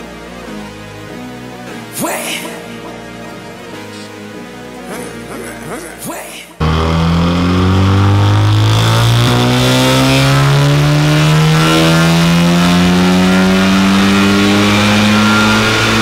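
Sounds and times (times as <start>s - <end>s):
turbocharged car engine under full load: 6.6s - 16.0s.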